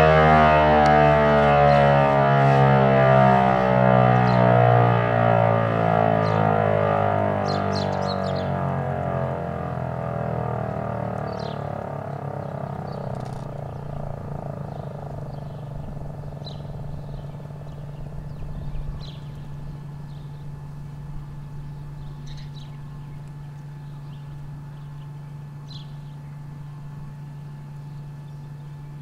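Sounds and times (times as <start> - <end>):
low hum: 0.0 - 29.0
high bird chirps: 11.2 - 20.5, 21.6 - 26.4.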